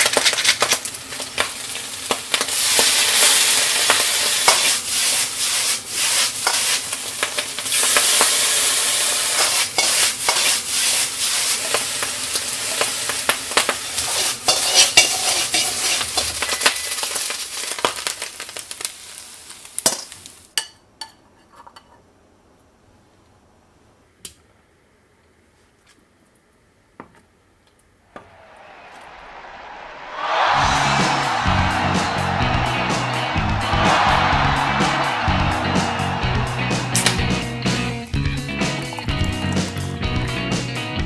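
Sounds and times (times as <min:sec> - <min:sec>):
rice sizzling in a wok: 0:00.0 - 0:20.6.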